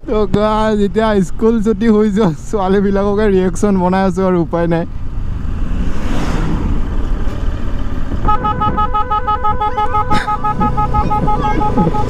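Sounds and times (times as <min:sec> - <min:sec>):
wind noise: 0:05.2 - 0:12.0
motorcycle engine running: 0:06.9 - 0:12.0
pulsing two-note horn blare: 0:08.2 - 0:12.0.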